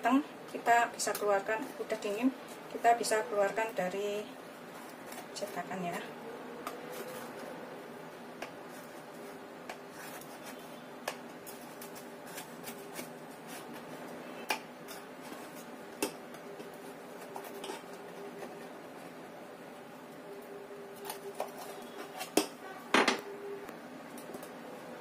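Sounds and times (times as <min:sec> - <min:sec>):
faint steady hum: 0:00.0 - 0:25.0
knife scraping baking dish: 0:17.2 - 0:18.6.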